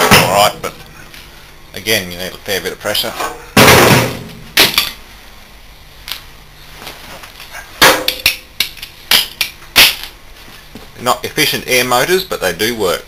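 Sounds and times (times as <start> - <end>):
metal clanks and knocks: 3.2 - 4.9.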